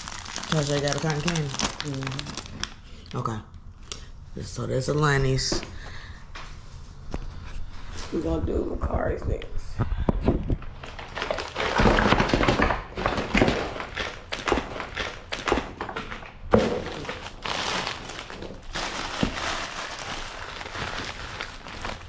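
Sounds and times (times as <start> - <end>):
plastic crinkling and rustling: 0.0 - 3.3, 10.5 - 22.0.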